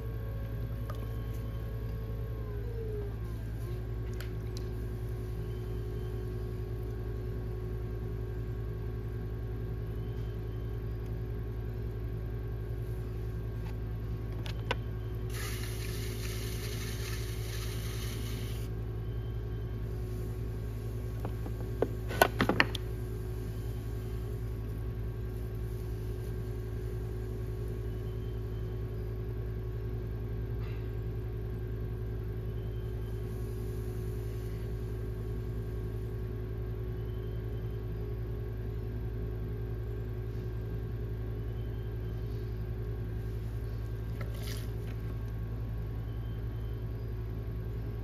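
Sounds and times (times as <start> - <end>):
low machine hum: 0.0 - 48.0
hiss: 15.3 - 18.7.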